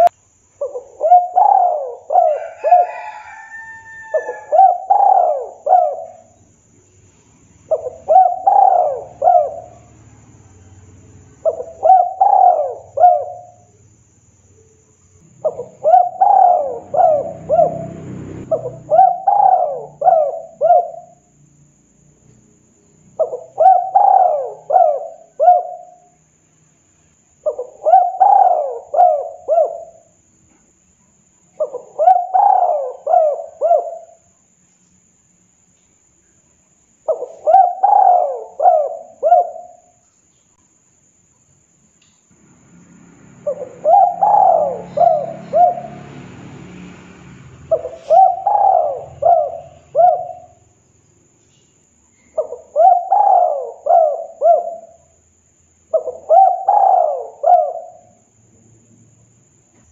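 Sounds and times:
dove cooing: 0.0s - 6.4s, 7.7s - 10.0s, 11.4s - 13.7s, 15.3s - 21.4s, 23.1s - 26.1s, 27.4s - 30.2s, 31.6s - 34.3s, 37.0s - 40.0s, 43.4s - 46.3s, 47.7s - 50.7s, 52.4s - 55.1s, 55.9s - 58.2s.

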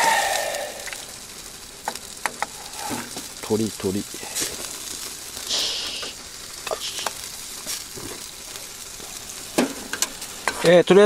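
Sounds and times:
short bright hiss: 0.0s - 3.4s, 4.2s - 8.1s
food sizzling: 0.0s - 11.0s.

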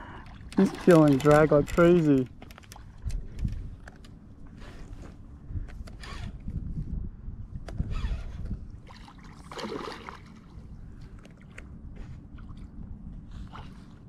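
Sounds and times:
wind rumble on microphone: 2.8s - 9.6s
fish splashing in water: 8.8s - 10.6s.

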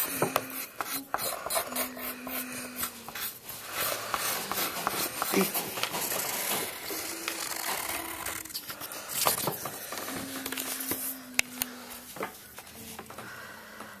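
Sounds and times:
pencil scratching on paper: 0.0s - 8.4s.

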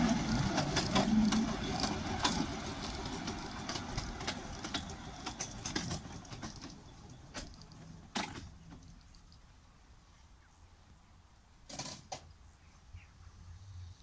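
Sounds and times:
steam locomotive running past: 0.0s - 8.2s
wheels clicking on rails: 0.0s - 9.4s.

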